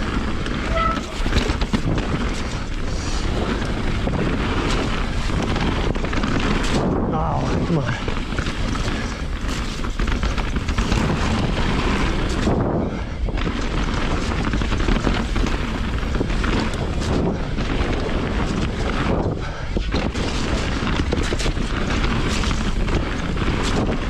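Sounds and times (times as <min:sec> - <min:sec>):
bike knocks and rattles: 0:00.0 - 0:24.0
bike tyre noise: 0:00.0 - 0:24.0
wind on microphone: 0:00.0 - 0:24.0.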